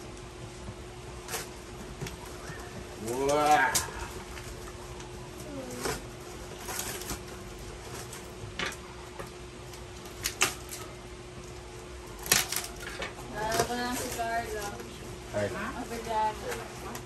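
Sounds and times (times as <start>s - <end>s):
wrapping paper tearing: 5.4s - 8.2s, 12.2s - 14.9s.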